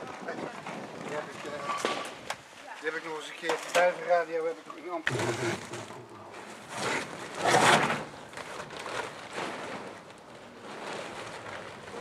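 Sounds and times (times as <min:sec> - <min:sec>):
tent sheet rustling: 0:06.4 - 0:12.0.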